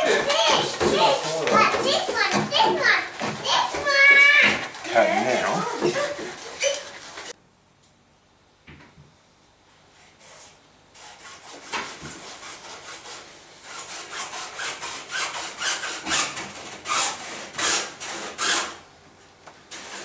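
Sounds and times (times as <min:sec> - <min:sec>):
hand saw cutting plastic pipe: 0:11.0 - 0:18.8.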